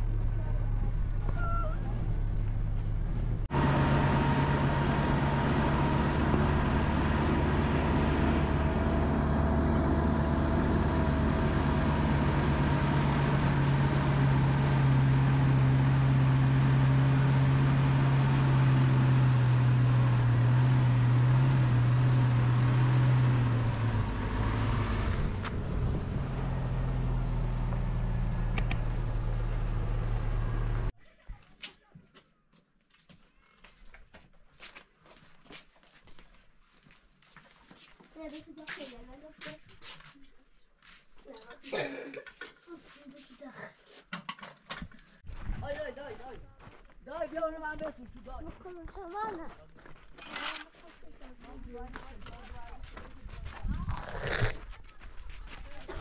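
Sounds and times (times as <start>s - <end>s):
vehicle engine running: 0.0s - 30.9s.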